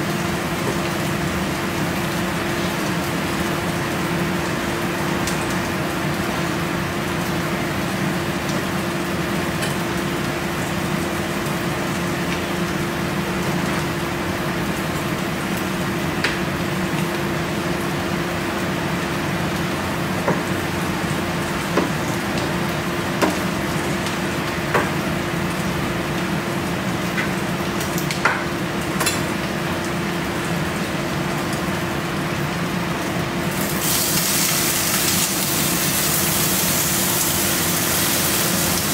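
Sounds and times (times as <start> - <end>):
stovetop sizzling hiss: 33.4 - 38.9.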